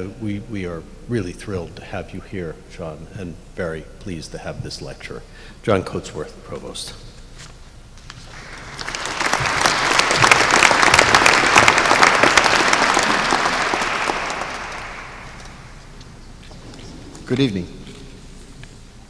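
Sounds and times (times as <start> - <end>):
audience applauding: 8.2 - 16.0.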